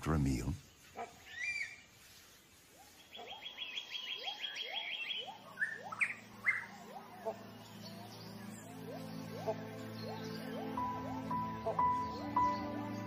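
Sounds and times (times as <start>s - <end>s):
sharp bird chirps: 2.8s - 13.0s
rising whistled bird notes: 3.0s - 13.0s.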